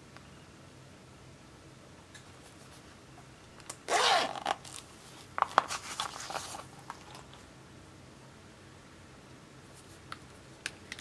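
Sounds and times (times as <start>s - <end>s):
zipper pulled open: 3.8s - 4.8s.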